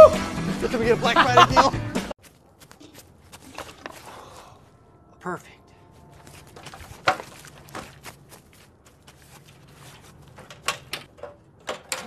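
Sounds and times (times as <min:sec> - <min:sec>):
ladder knocking and tapping: 0:06.6 - 0:07.9, 0:09.9 - 0:12.0.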